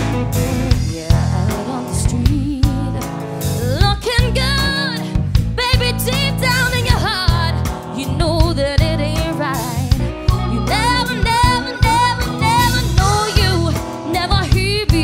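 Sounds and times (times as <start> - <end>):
live pop band playing: 0.0 - 15.0
woman singing lead: 0.6 - 15.0.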